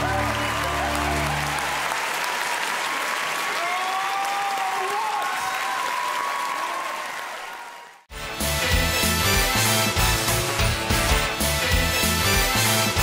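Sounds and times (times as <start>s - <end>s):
voices cheering: 0.0s - 8.0s
audience applauding: 0.0s - 8.1s
music playing: 8.1s - 13.0s.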